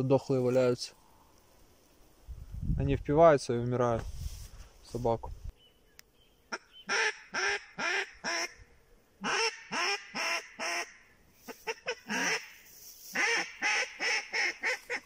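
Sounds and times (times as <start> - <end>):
waterfowl quacking and honking: 9.2 - 15.0.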